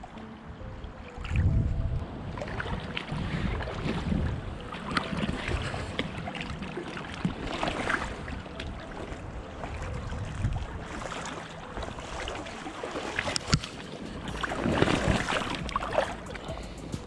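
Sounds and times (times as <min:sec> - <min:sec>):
fish thrashing and splashing in water: 0:04.8 - 0:09.0, 0:09.8 - 0:16.2.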